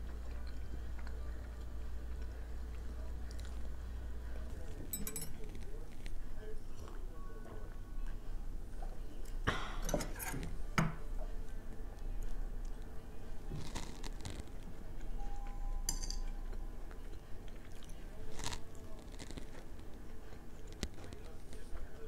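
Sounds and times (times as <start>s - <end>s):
chewing and crunching: 0.0s - 7.1s, 11.2s - 15.2s, 16.2s - 22.0s.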